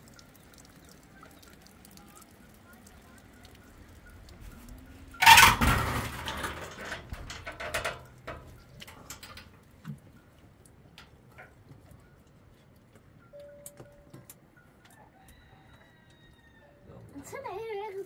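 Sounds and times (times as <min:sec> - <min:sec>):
loud scraping clatter: 0:05.2 - 0:08.4
knocks and clinks: 0:05.2 - 0:09.5.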